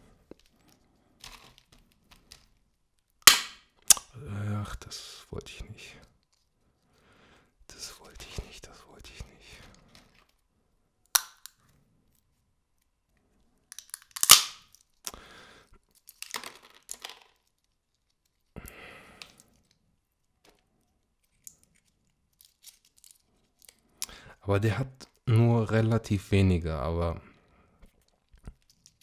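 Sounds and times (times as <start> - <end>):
shell pieces crackling and rustling: 0.2 - 4.0, 6.1 - 7.1, 9.5 - 10.5, 11.1 - 18.6, 19.2 - 24.0, 27.8 - 29.0
walnut shell cracking: 0.3 - 4.2, 11.0 - 11.7, 13.7 - 18.6, 20.4 - 24.2, 27.8 - 29.0.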